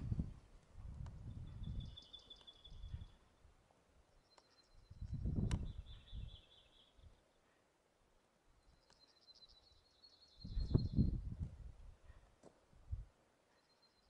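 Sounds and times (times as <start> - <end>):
wind buffeting microphone: 0.0 - 2.0, 2.7 - 3.2, 4.9 - 6.4, 10.4 - 12.0.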